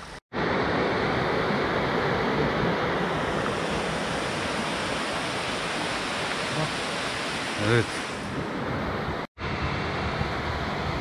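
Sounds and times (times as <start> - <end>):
water cascading over rocks: 2.6 - 8.3.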